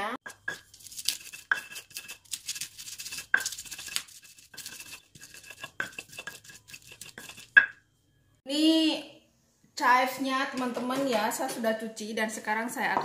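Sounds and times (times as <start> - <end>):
stone pestle pounding: 0.2 - 7.8
gritty scraping in stone mortar: 0.3 - 7.6.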